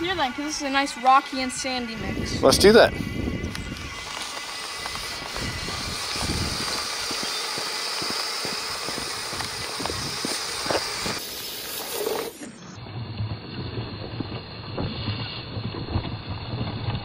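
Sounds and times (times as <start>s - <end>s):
small electric motors whining: 0.0s - 12.8s
gravel crunching under tyres: 2.2s - 17.0s.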